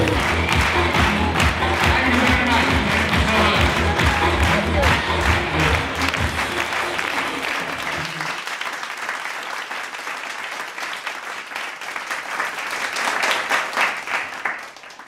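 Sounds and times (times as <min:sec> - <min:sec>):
circus music: 0:00.0 - 0:08.4
audience applauding: 0:00.0 - 0:15.0.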